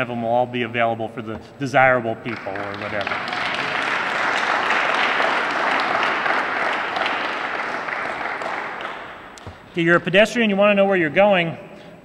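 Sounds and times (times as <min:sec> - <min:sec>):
audience applauding: 0:02.3 - 0:09.4.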